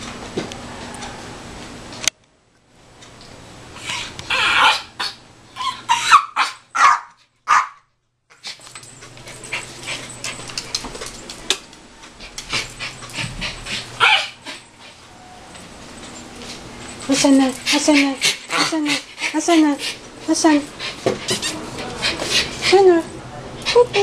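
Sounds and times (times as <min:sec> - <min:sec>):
dog whining cries: 0:03.8 - 0:07.0, 0:12.5 - 0:16.3.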